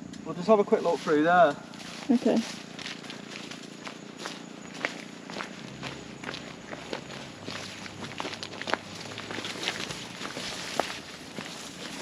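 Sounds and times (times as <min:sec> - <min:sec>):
leaves and grass rustling: 0:00.3 - 0:12.0
footsteps on dirt path: 0:00.4 - 0:12.0.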